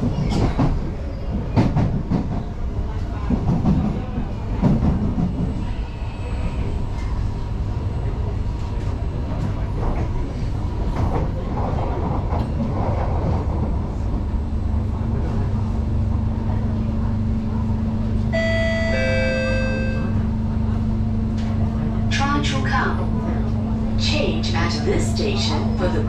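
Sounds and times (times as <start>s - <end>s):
train clatter: 0.0s - 6.0s, 8.5s - 15.5s
train wheels rumbling on rail: 0.0s - 26.0s.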